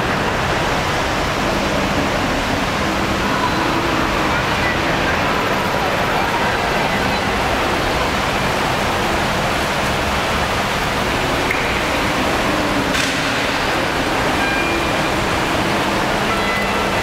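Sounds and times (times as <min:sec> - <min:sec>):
loud rushing noise: 0:00.0 - 0:17.0
faint steady tones: 0:13.5 - 0:17.0.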